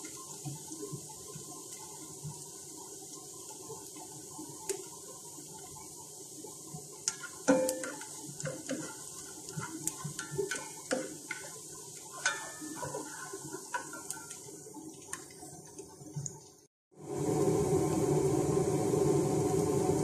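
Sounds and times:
onion sizzling in oil: 0.0s - 20.0s
spatula scraping frying pan: 7.0s - 14.4s.

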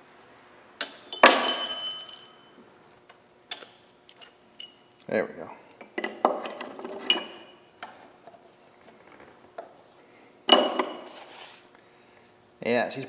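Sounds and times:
metal parts knocking and clinking: 0.8s - 2.6s.

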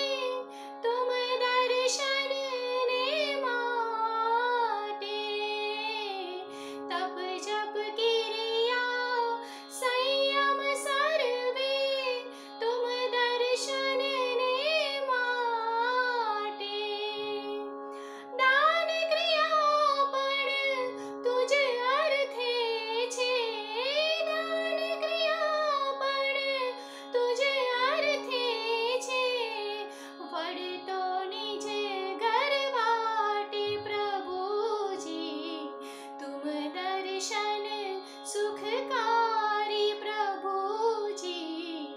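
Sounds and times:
woman singing: 0.0s - 17.6s, 18.3s - 41.9s.

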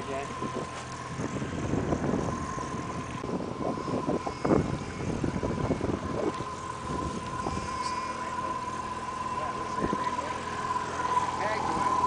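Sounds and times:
boat motor whining: 0.0s - 12.0s
wind buffeting microphone: 0.0s - 12.0s.

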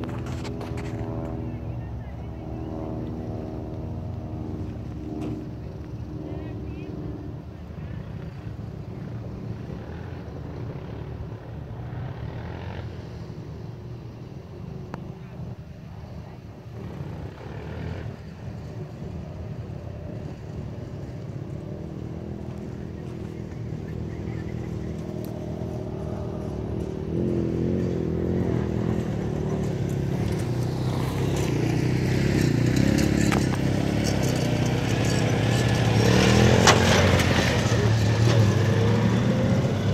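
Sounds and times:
car engine driving over dirt: 0.0s - 1.8s, 20.2s - 39.9s.

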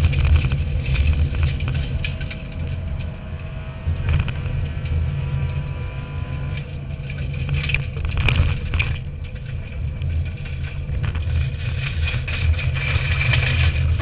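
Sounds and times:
rally car engine under load: 0.0s - 14.0s.

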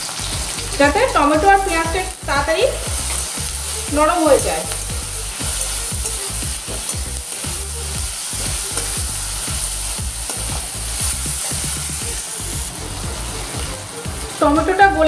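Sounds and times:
vegetables sizzling in hot oil: 0.0s - 15.0s
metal spatula stirring and scraping: 2.8s - 14.4s.

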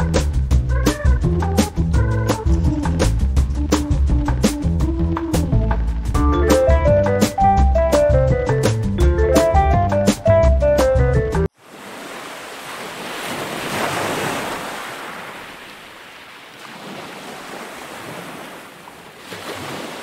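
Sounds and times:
sea waves washing onto shore: 11.5s - 20.0s.

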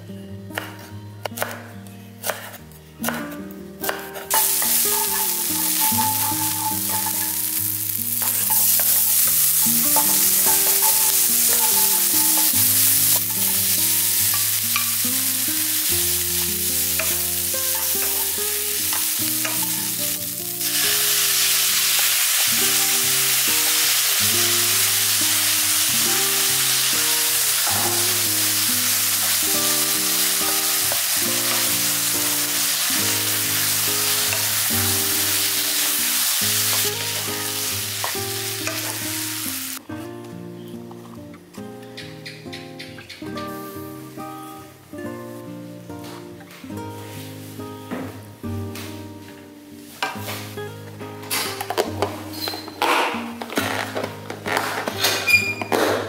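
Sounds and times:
food sizzling in a pan: 4.1s - 39.8s, 43.4s - 44.6s, 49.6s - 54.9s.

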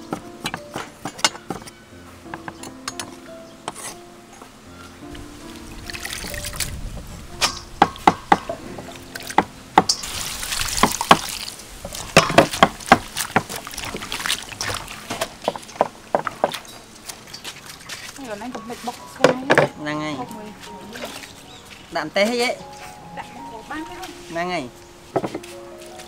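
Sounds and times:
hands squeezing wet vegetables: 5.4s - 6.8s, 8.9s - 19.1s
water pouring into a metal bowl: 5.8s - 6.7s, 8.9s - 15.7s.

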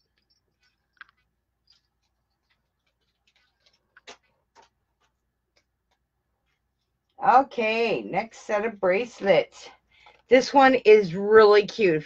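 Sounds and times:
faint clicks and taps: 0.0s - 7.3s.

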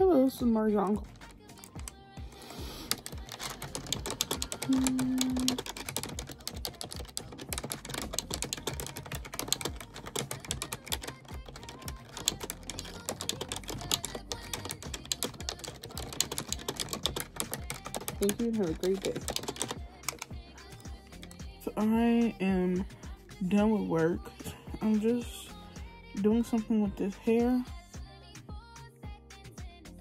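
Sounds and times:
typing on computer keyboard: 1.0s - 2.0s, 2.8s - 21.5s.

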